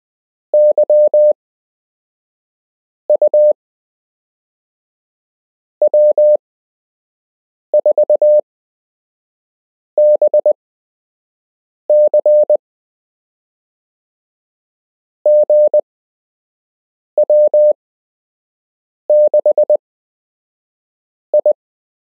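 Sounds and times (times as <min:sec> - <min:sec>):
morse code beeps: 0:00.6 - 0:01.4, 0:03.1 - 0:03.6, 0:05.8 - 0:06.4, 0:07.8 - 0:08.4, 0:10.0 - 0:10.6, 0:11.9 - 0:12.6, 0:15.3 - 0:15.8, 0:17.2 - 0:17.8, 0:19.1 - 0:19.8, 0:21.4 - 0:21.6.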